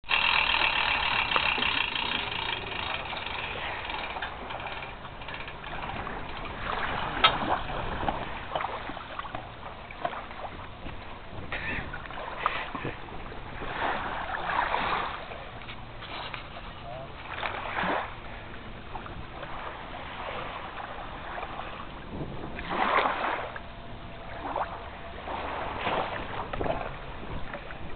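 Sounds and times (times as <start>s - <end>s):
steady whine: 0.1s - 14.4s, 20.7s - 27.9s
water sloshing: 0.1s - 27.9s.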